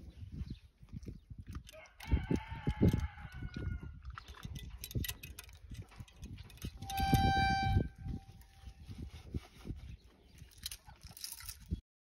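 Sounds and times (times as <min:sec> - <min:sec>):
high-pitched call: 0:06.8 - 0:08.0.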